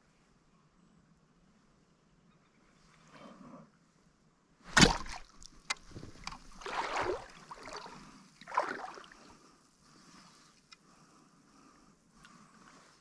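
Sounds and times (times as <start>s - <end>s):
spear splashing in water: 4.7s - 9.2s.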